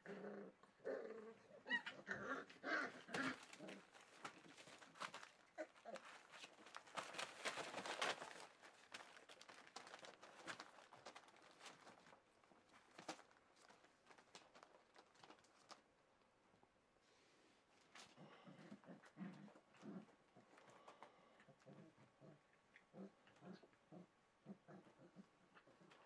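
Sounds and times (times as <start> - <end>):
puppy growls: 0.0 - 6.3, 18.0 - 26.0
paws scratching on bedding: 2.4 - 15.9.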